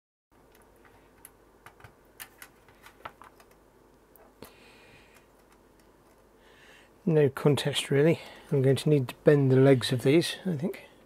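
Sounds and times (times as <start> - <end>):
small sharp clicks and taps: 5.1 - 6.2.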